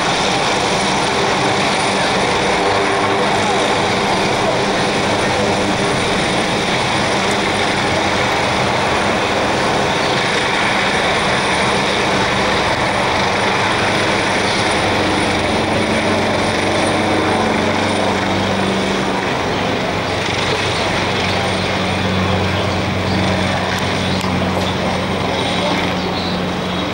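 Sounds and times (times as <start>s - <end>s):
helicopter rotor and turbines: 0.0s - 26.9s.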